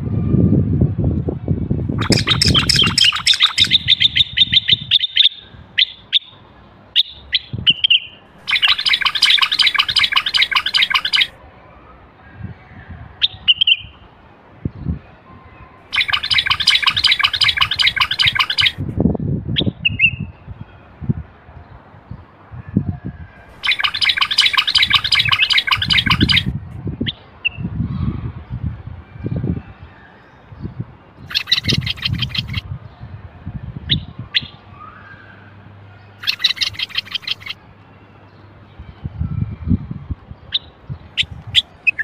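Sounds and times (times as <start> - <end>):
bird harsh buzzy chattering: 2.0 - 4.8, 15.9 - 18.8, 23.6 - 26.5
bird single call notes: 2.0 - 6.3, 7.0 - 11.3.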